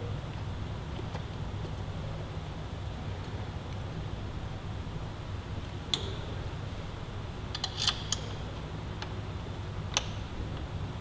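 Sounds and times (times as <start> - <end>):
steady low hum: 0.0 - 11.0
tools and fasteners clicking: 7.5 - 8.4.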